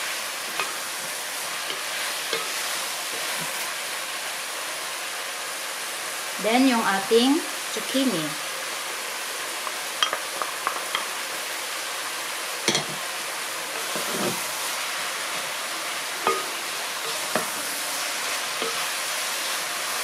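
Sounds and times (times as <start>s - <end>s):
food sizzling in a pot: 0.0s - 20.0s
wooden spatula stirring and knocking: 13.8s - 14.5s, 16.2s - 18.0s.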